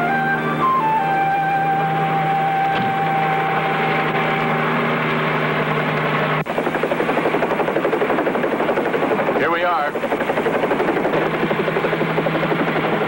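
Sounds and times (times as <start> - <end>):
held orchestral chord: 0.0 - 5.5
helicopter rotor beating: 0.0 - 13.0.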